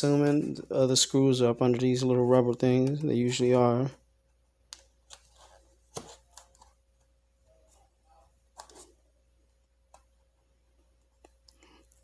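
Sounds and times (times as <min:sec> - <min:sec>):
faint clicks and taps: 0:04.7 - 0:07.8, 0:09.8 - 0:10.2, 0:11.0 - 0:12.0.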